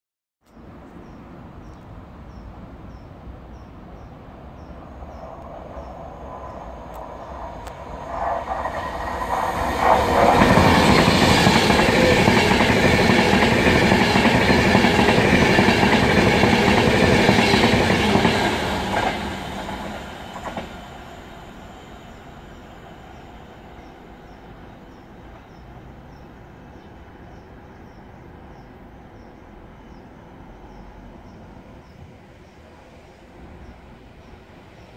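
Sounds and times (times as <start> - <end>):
express train passing: 0.7 - 34.9.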